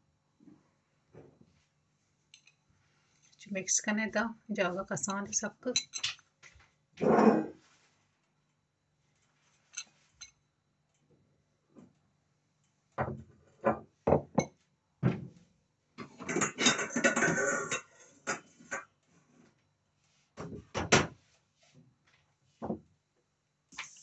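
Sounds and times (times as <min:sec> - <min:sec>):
dishes and utensils clinking: 0:05.7 - 0:06.3, 0:09.6 - 0:10.4, 0:16.0 - 0:18.9.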